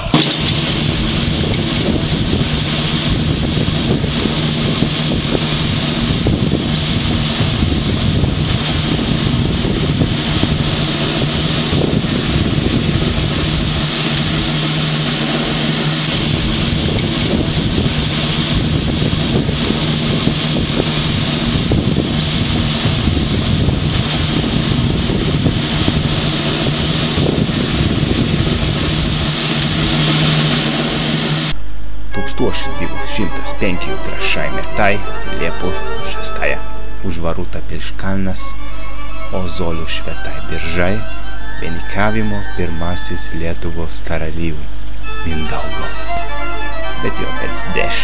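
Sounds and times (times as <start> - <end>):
wind buffeting microphone: 0.0 - 31.1
low steady hum: 31.4 - 48.0.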